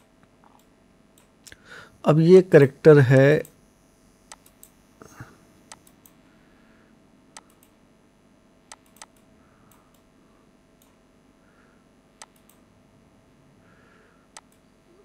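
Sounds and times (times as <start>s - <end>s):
faint room noise: 0.0s - 15.0s
computer mouse clicking: 0.4s - 1.3s, 4.3s - 4.8s, 5.7s - 6.2s, 7.4s - 7.8s, 8.7s - 10.1s, 10.8s - 11.0s, 12.2s - 12.7s, 14.3s - 14.7s.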